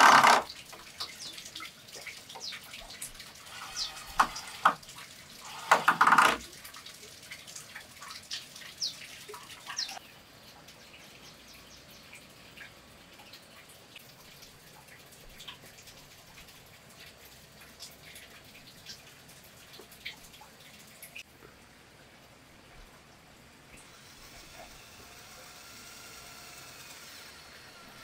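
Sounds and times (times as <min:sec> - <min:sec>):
cordless drill driving screw: 0:00.0 - 0:00.5, 0:03.5 - 0:04.8, 0:05.4 - 0:06.4.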